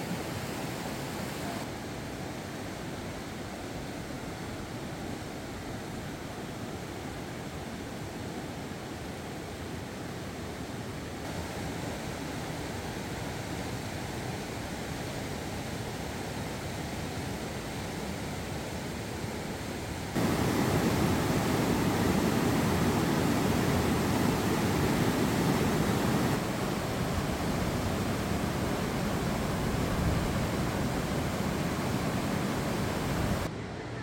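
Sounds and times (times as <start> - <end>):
fast river rushing: 20.0 - 33.5.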